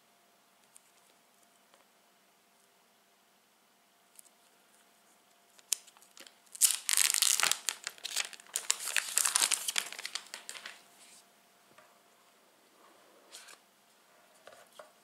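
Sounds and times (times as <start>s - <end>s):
plastic wrap crinkling: 5.5s - 10.8s.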